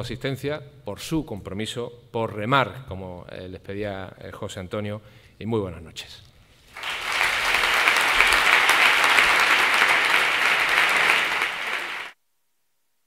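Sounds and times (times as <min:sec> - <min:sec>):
audience applauding: 0:06.7 - 0:12.2.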